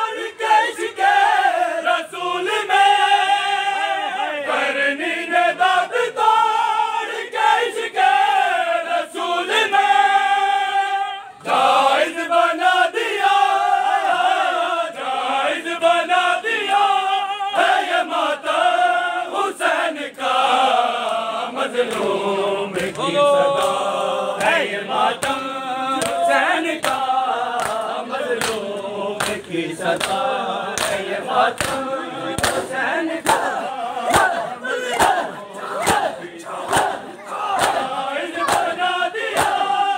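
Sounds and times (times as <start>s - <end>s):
men chanting in unison: 0.0s - 39.9s
palms slapping bare chests: 30.0s - 39.7s.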